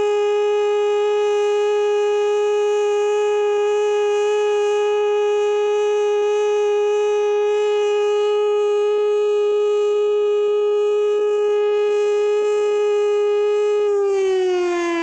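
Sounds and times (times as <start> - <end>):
air-raid siren: 0.0 - 15.0.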